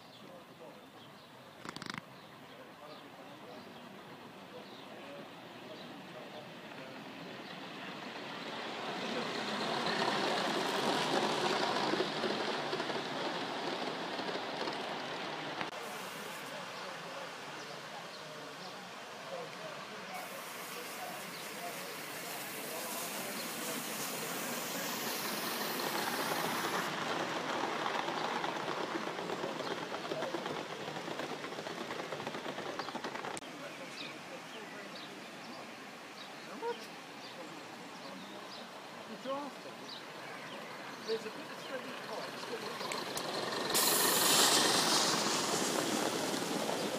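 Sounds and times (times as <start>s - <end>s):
model train rolling on rails: 2.8s - 36.4s, 37.0s - 46.9s
model train wheels clattering: 20.7s - 33.4s, 41.6s - 46.9s.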